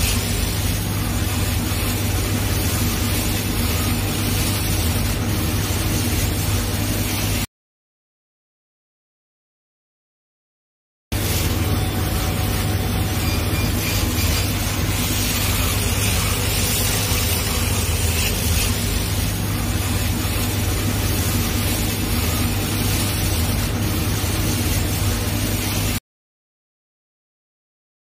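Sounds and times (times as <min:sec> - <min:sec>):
laser cutter hum and hiss: 0:00.0 - 0:07.5, 0:11.1 - 0:26.0.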